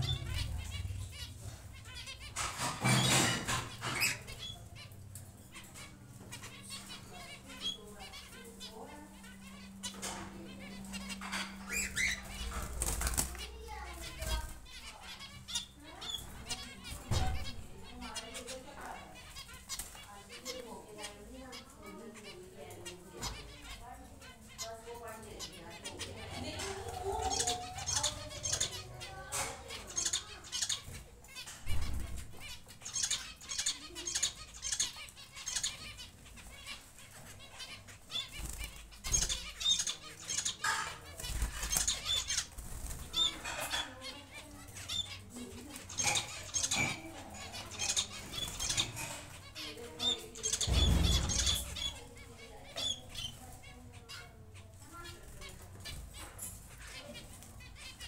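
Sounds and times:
doves fluttering wings: 11.7s - 13.7s.

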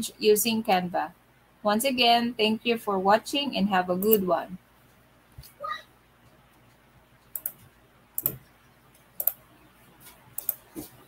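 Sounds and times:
computer mouse clicking: 4.0s - 4.2s, 7.3s - 8.5s, 9.2s - 9.4s, 10.4s - 10.7s.

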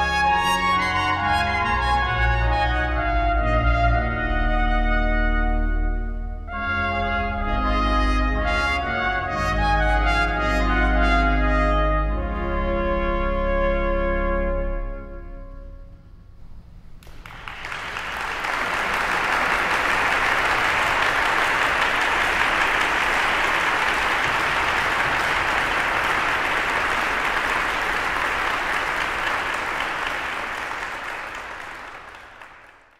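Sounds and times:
trumpets and organ chord: 0.0s - 16.4s
audience applause: 17.0s - 32.9s.

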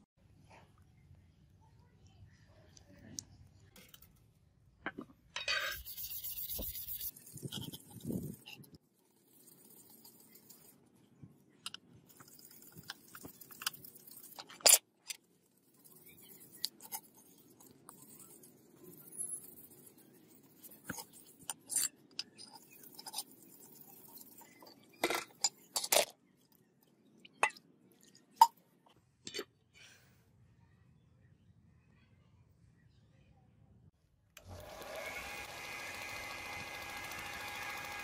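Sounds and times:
brush scrubbing metal blade: 5.5s - 10.9s, 12.1s - 14.8s, 15.5s - 24.9s.

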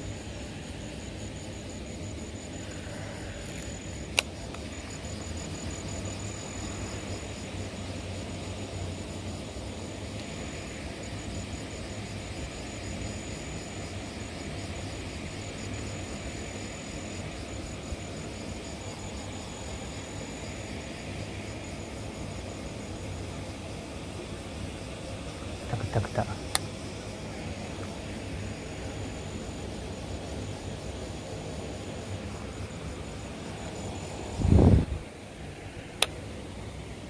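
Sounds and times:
insects chirping trill: 0.0s - 37.0s
sharp click: 36.0s - 36.2s.

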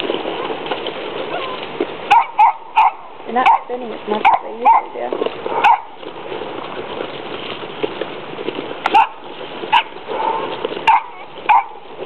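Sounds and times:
puppies eating clatter: 0.0s - 12.0s
puppy yips: 1.3s - 3.6s, 10.9s - 11.8s.

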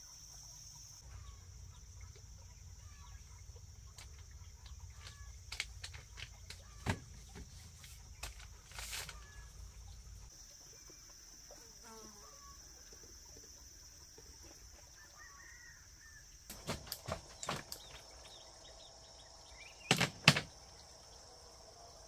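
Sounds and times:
sharp knocks: 19.9s - 20.5s.

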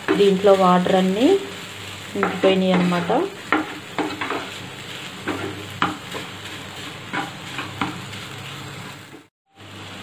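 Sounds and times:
low sizzle: 0.0s - 10.0s
wooden spatula scraping pan: 2.2s - 9.3s.

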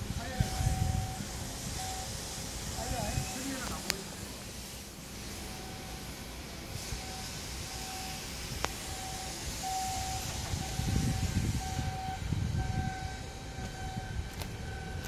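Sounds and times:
forklift engine running: 0.0s - 15.0s
warning beeper beeping: 7.0s - 15.0s.

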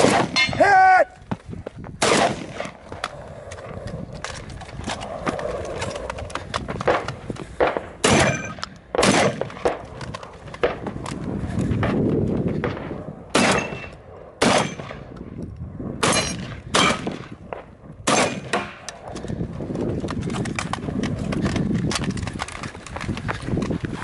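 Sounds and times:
shotgun shots: 0.0s - 0.6s, 2.0s - 2.8s, 6.8s - 10.0s, 12.6s - 15.1s, 16.0s - 18.9s
footsteps running on dirt: 19.2s - 24.0s.

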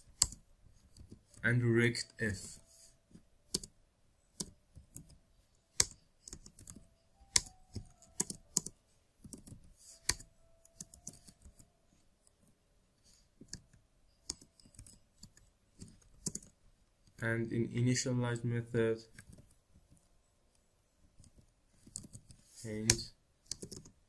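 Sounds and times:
typing on computer keyboard: 0.0s - 1.4s, 3.5s - 3.8s, 4.4s - 5.2s, 5.8s - 11.7s, 13.5s - 16.6s, 21.2s - 24.0s.

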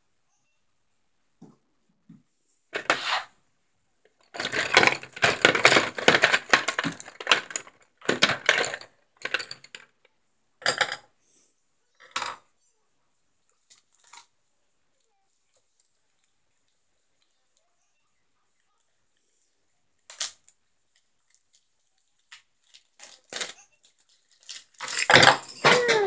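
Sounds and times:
small hard objects clattering: 4.2s - 9.9s, 22.3s - 26.0s.

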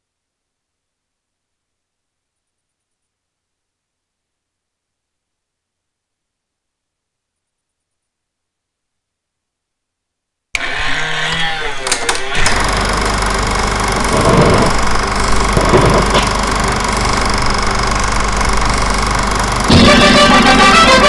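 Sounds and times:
film projector whirr and clatter: 10.6s - 21.0s
low hum: 10.6s - 21.0s.

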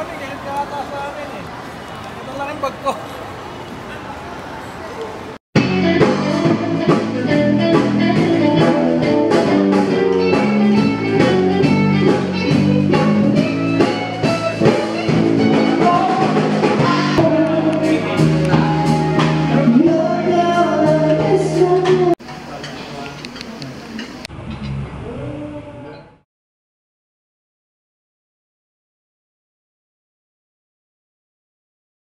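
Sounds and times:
song with singing over a band: 5.6s - 22.2s.

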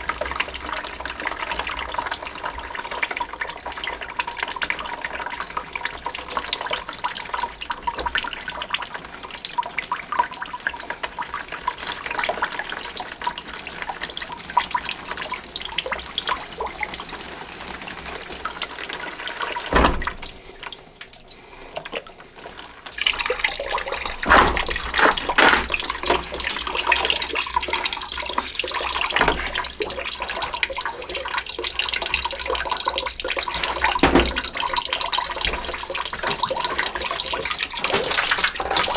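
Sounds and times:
water splashing into plastic bucket: 10.3s - 38.9s.

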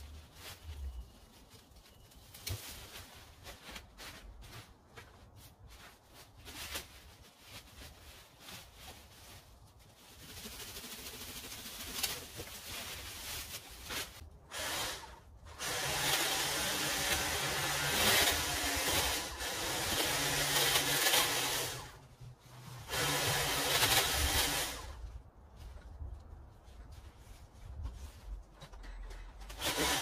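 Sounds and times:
hedge trimmer cutting shrubs: 14.5s - 22.0s, 22.8s - 25.0s, 29.5s - 30.0s.

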